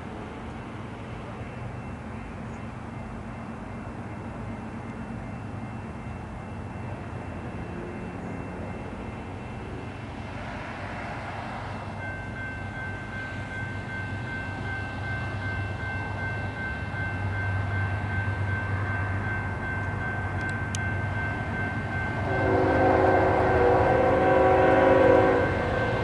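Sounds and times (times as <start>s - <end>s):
distant diesel locomotive drone: 0.0s - 26.0s.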